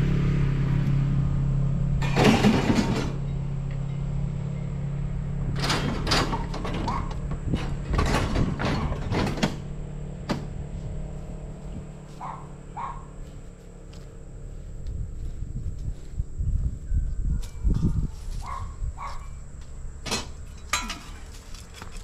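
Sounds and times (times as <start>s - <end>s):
scrap metal clanking and scraping: 2.0s - 4.7s, 5.5s - 11.0s, 20.0s - 22.0s.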